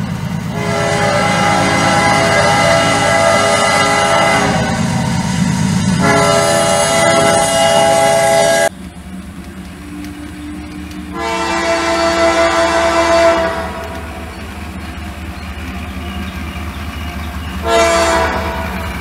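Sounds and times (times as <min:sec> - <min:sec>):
low engine rumble: 0:00.0 - 0:19.0
model locomotive horn: 0:00.5 - 0:05.2, 0:05.9 - 0:08.7, 0:10.0 - 0:14.4, 0:17.6 - 0:18.9.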